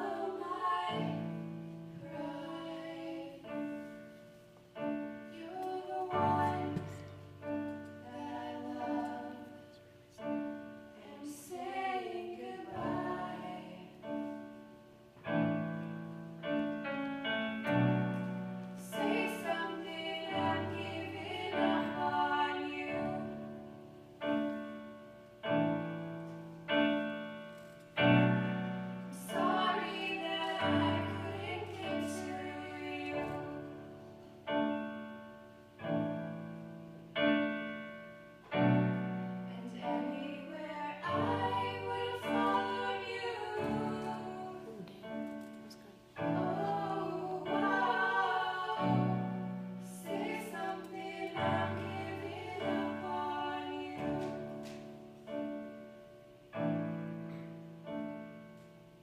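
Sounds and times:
piano chords: 0.0 - 59.0
woman singing: 5.4 - 7.0, 8.0 - 9.8, 11.0 - 14.0, 18.8 - 23.4, 29.2 - 33.9, 39.5 - 45.4, 46.2 - 49.2, 50.0 - 54.5.

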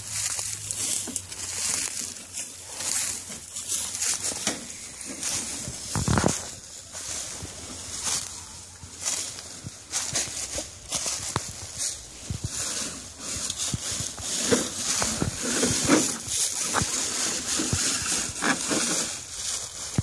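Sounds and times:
footsteps crunching through dry leaves: 0.0 - 20.0.

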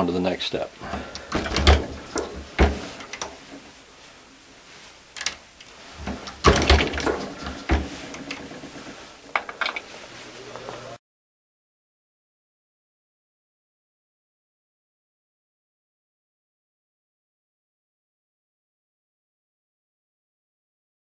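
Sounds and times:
reloading press metal clicks: 5.2 - 5.4.

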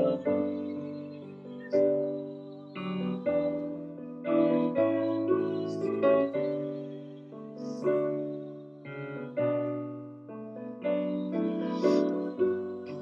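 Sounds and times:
slow keyboard chords: 0.0 - 13.0.

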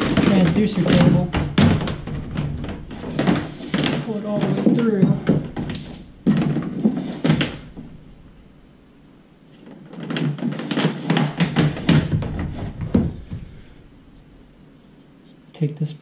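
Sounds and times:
cable knocking and rubbing plastic: 0.0 - 8.3, 9.5 - 13.7.

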